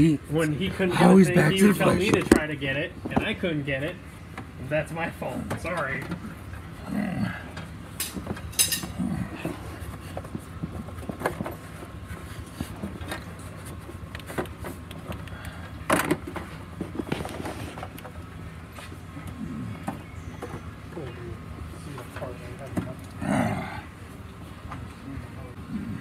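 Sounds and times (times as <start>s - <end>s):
steady low hum: 0.0s - 26.0s
rubber and plastic handling noises: 15.9s - 19.0s.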